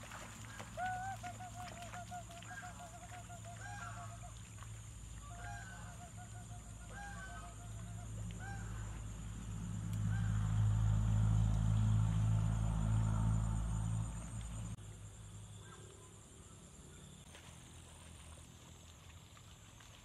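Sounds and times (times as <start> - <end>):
low rumble: 8.3 - 14.8.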